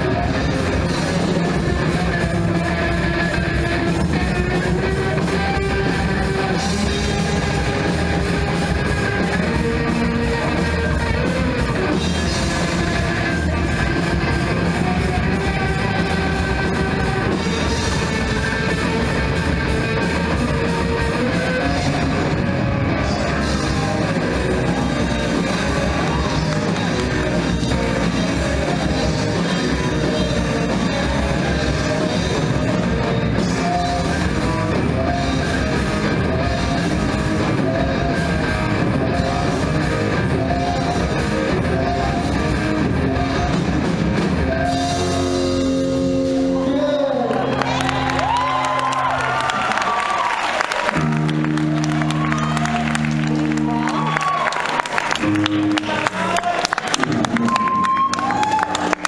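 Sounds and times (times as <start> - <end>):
drum kit: 0.0 - 46.6
electric guitars: 0.0 - 59.0.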